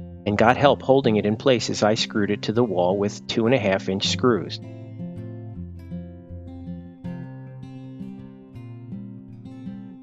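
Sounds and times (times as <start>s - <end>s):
strummed acoustic guitar: 0.0s - 10.0s.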